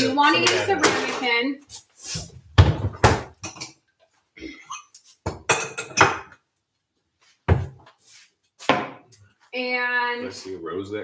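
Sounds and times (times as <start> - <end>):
crockery clinking and clattering: 0.0 - 1.4, 3.0 - 3.8, 4.7 - 6.4
dishes knocking down on counter: 5.3 - 6.3.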